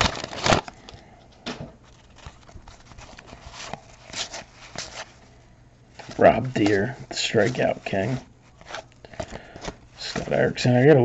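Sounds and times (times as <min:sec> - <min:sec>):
wrapper crinkling being torn: 0:00.0 - 0:01.0.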